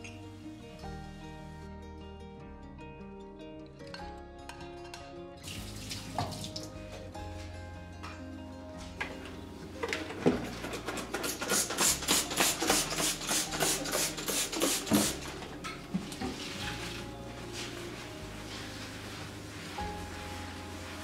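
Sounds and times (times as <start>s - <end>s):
squeeze bottle hissing spurts: 11.2s - 15.3s.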